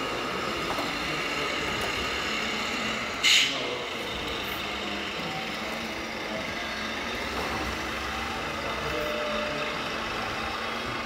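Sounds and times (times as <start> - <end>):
hall background noise: 0.0 - 11.0
simulated diesel engine idling: 0.0 - 11.0.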